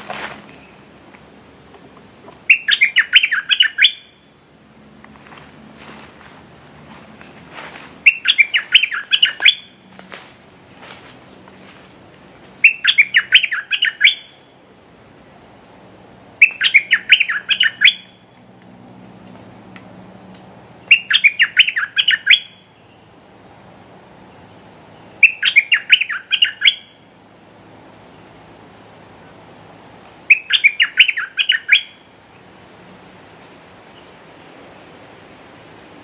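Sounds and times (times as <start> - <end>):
bulbul singing: 2.3 - 4.6, 8.0 - 9.9, 12.6 - 14.6, 16.3 - 18.8, 20.5 - 23.2, 24.0 - 27.2, 29.9 - 32.2.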